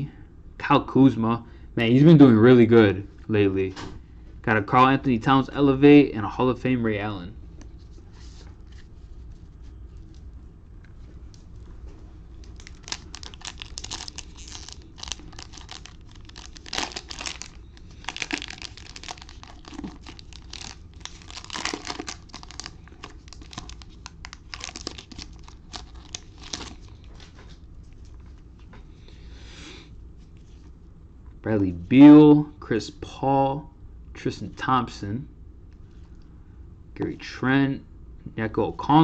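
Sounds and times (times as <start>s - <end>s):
cellophane crinkling and tearing: 12.4s - 27.4s.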